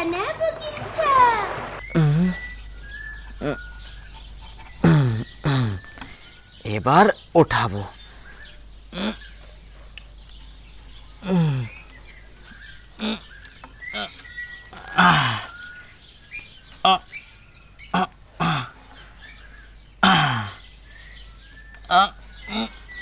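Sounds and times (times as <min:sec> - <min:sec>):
faint bird chirping: 0:00.0 - 0:23.0
man grunting with effort: 0:11.2 - 0:11.7, 0:14.9 - 0:15.5, 0:18.0 - 0:18.8, 0:20.0 - 0:20.6.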